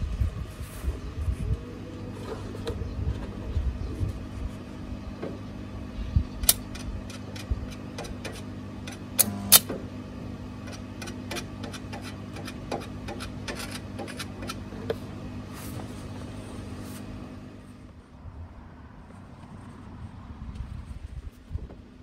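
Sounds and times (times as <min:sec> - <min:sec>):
welder machine hum: 0:03.8 - 0:18.1.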